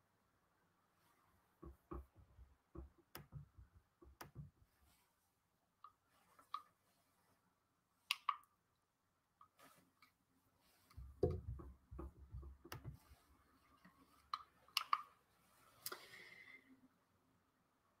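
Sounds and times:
faint clicks and taps: 0:01.6 - 0:04.8, 0:10.9 - 0:13.2.

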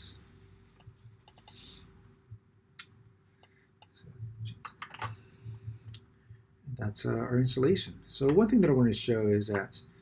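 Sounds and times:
low steady hum: 0:00.0 - 0:10.0
mouse and keyboard clicks: 0:00.8 - 0:01.6.

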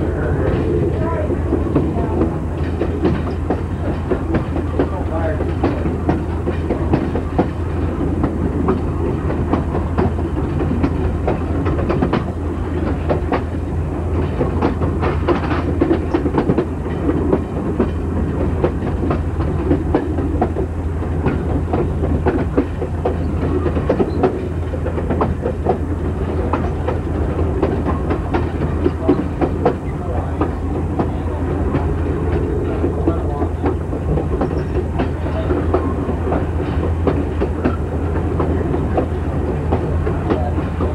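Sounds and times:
train wheels rumbling on track: 0:00.0 - 0:40.9.

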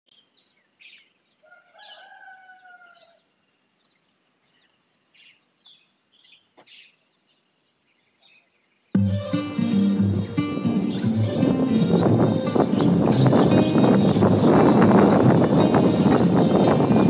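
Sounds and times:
rooster crowing: 0:01.4 - 0:03.3
bird chirps: 0:02.9 - 0:14.8
high repeating chirp: 0:09.0 - 0:17.0.

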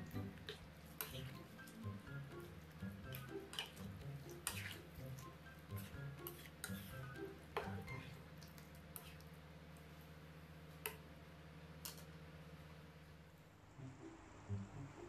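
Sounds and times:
light background music: 0:00.0 - 0:08.3, 0:13.7 - 0:15.0
spatula stirring thick curry: 0:00.1 - 0:08.2.

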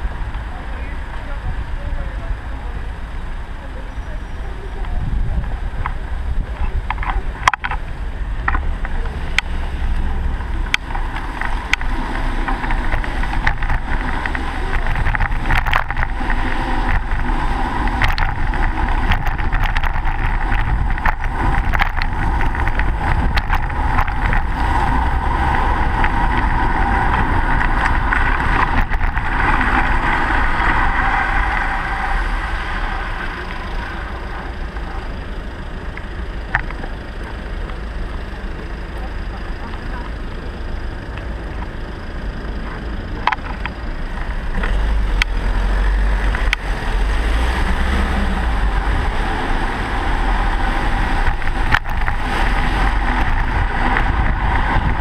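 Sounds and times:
cars passing: 0:00.0 - 0:55.0
wind and tyre noise: 0:00.0 - 0:55.0
bike knocks and rattles: 0:10.6 - 0:31.6.

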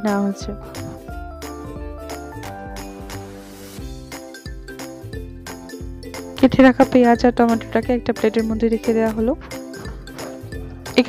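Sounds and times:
instrumental music: 0:00.0 - 0:11.0.

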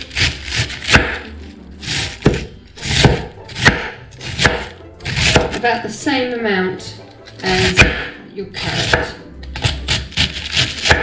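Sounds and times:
knife crunching through cabbage: 0:00.0 - 0:05.6, 0:08.7 - 0:11.0.

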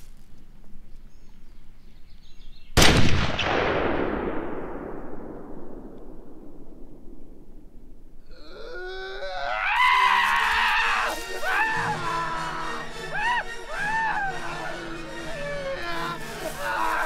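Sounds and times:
rifle shot with echo: 0:02.8 - 0:07.9.

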